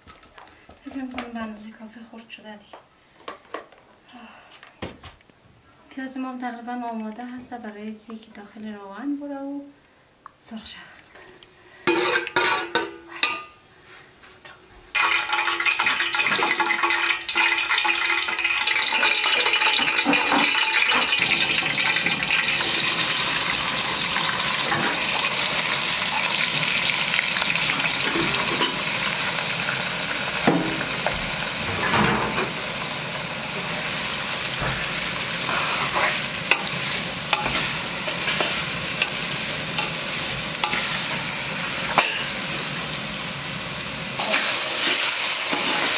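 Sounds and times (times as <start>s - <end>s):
onion sizzling in hot oil: 14.9s - 45.9s
metal spoon clinking on pot: 40.6s - 40.9s.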